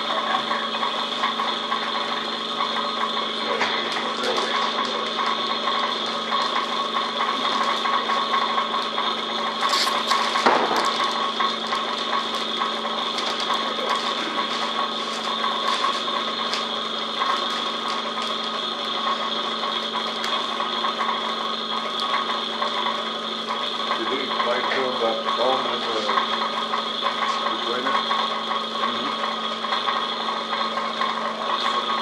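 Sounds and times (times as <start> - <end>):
vacuum pump running: 0.0 - 32.0
plastic film crackling: 12.4 - 18.6.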